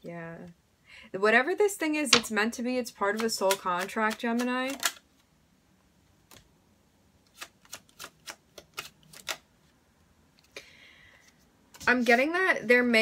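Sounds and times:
cards clicking while shuffled: 3.1 - 5.0, 7.3 - 9.5
cards snapping: 3.1 - 5.0, 7.3 - 9.5.

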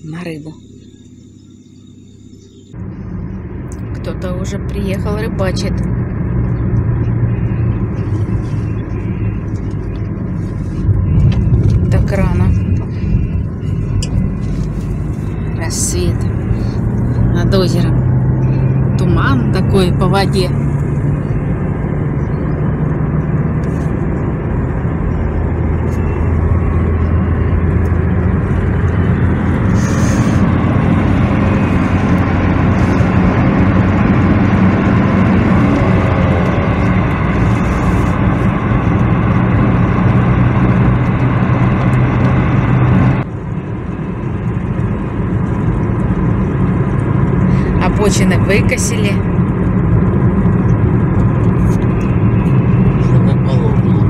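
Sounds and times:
car cabin engine and road noise: 0.0 - 54.0.

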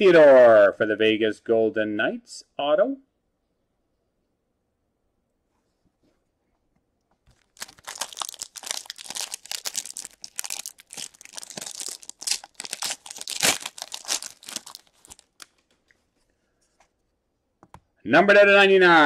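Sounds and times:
foil wrapper crinkling and tearing: 7.3 - 15.7.

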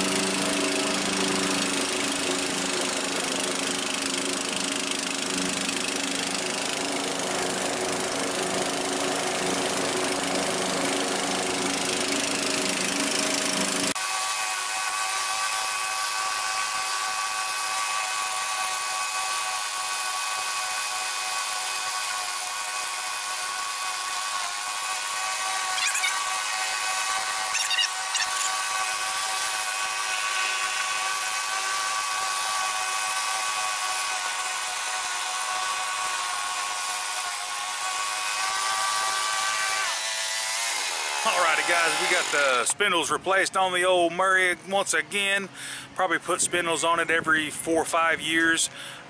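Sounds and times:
riding mower high-pitched whine: 0.0 - 42.8.

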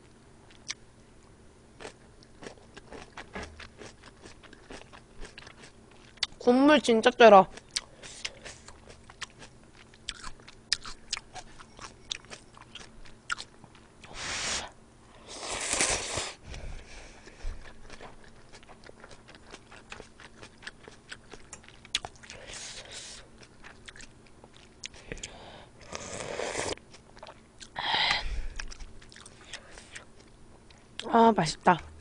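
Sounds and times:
wet chewing with mouth clicks: 1.8 - 6.4, 7.5 - 14.2, 17.2 - 31.1.

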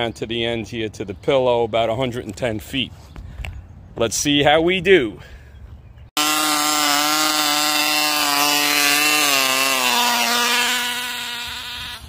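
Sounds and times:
model glow engine buzzing: 6.2 - 12.0.

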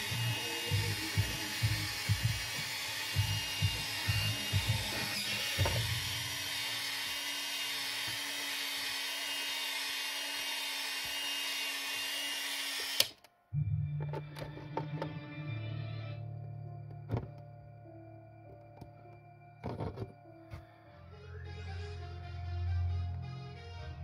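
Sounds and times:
low music beat: 0.0 - 5.8
small electric motor whirring: 0.0 - 13.2.

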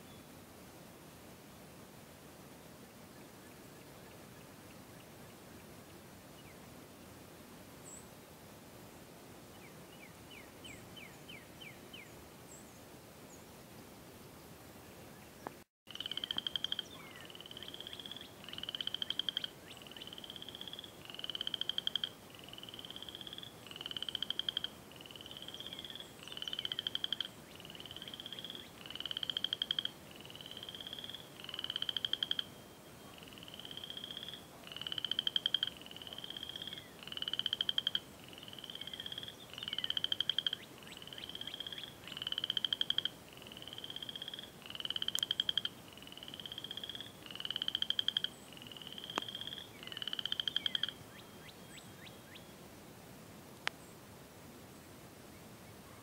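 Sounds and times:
frogs trilling: 15.9 - 52.4.

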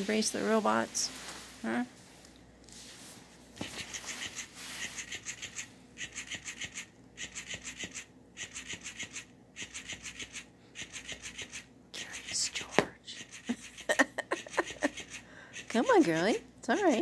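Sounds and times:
toy motor clicking buzz: 3.7 - 17.0.

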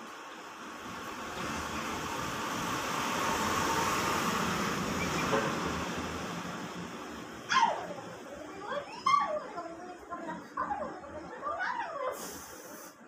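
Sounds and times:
vehicle passing: 1.0 - 8.8
dog yelp: 7.5 - 8.0, 8.8 - 9.5.

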